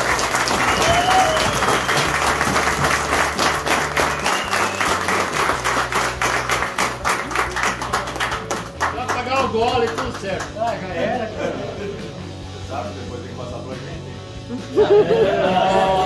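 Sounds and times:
people clapping: 0.0s - 11.2s.

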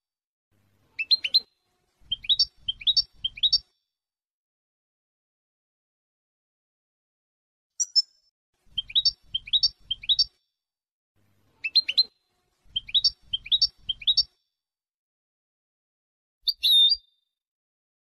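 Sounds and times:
goldfinch song: 0.9s - 3.7s, 7.8s - 10.4s, 11.6s - 14.3s, 16.4s - 17.1s.

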